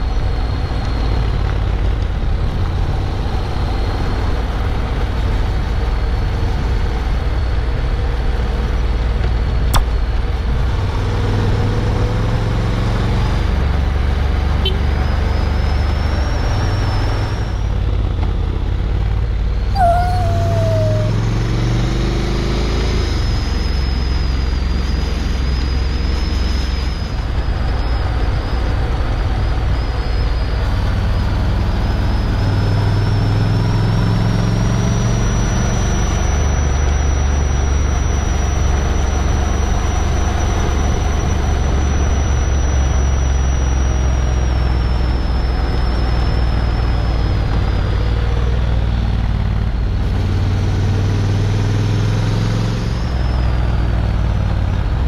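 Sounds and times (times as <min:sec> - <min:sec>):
wind and tyre noise: 0:00.0 - 0:55.0
dog yelping: 0:19.8 - 0:21.3.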